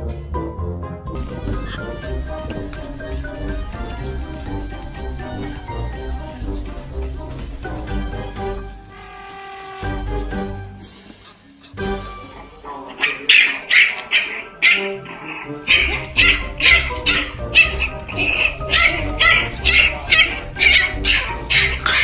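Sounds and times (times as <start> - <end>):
background music with steady beat: 0.0 - 12.8.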